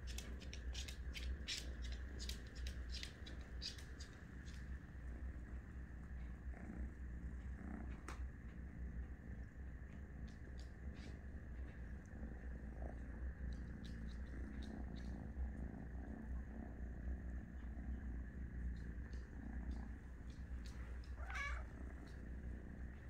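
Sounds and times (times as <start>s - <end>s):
cat purring: 0.0s - 23.0s
cat meowing: 21.1s - 21.8s.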